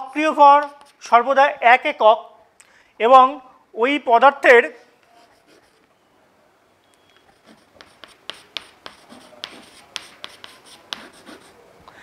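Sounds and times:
chalk writing on a chalkboard: 0.6s - 1.0s, 5.0s - 5.8s, 7.2s - 11.6s.

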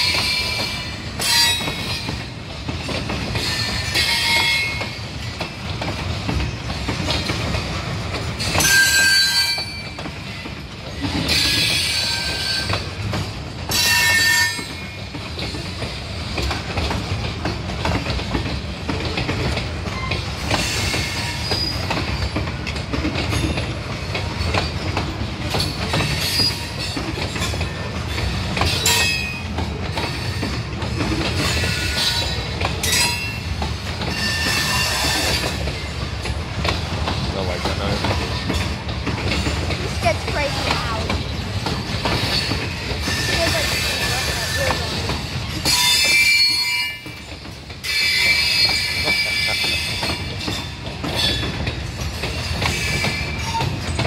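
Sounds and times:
train wheels rumbling on rail: 0.0s - 54.0s
metal wheel squeals: 8.5s - 10.0s, 13.7s - 15.0s, 19.9s - 22.4s, 26.0s - 27.0s, 34.1s - 35.6s, 45.6s - 51.5s, 52.7s - 53.9s.

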